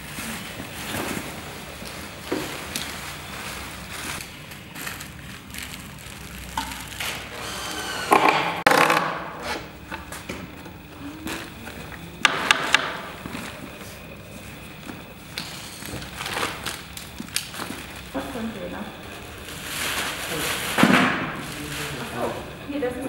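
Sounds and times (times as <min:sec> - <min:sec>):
plastic packaging crinkling: 0:02.7 - 0:07.3, 0:15.4 - 0:18.5
cordless drill whirring: 0:07.0 - 0:08.8.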